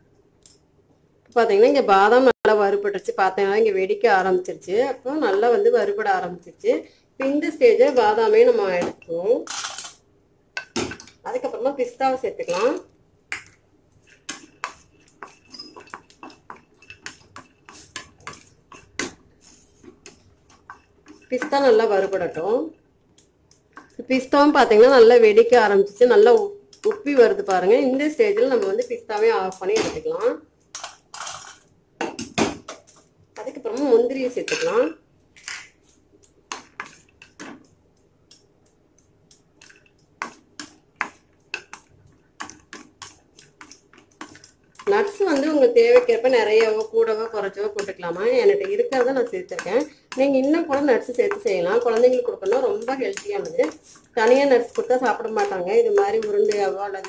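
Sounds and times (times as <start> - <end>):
wooden spoon knocking on pan: 44.0 - 57.0.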